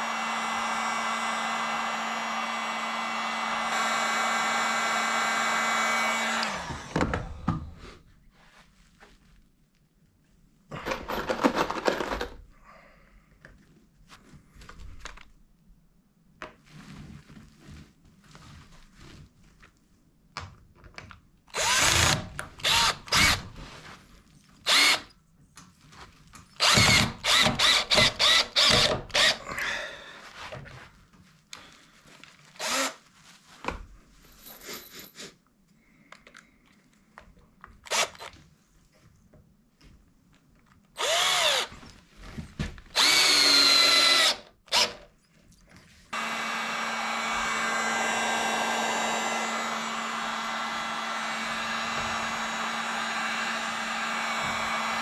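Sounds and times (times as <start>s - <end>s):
cordless drill driving screws: 0.0s - 7.0s, 21.6s - 23.4s, 24.7s - 25.1s, 26.6s - 29.4s, 32.6s - 33.0s, 37.9s - 38.3s, 41.0s - 41.7s, 42.9s - 45.1s, 46.2s - 55.0s
heat gun blowing: 41.0s - 41.7s, 43.0s - 45.0s, 46.1s - 55.0s.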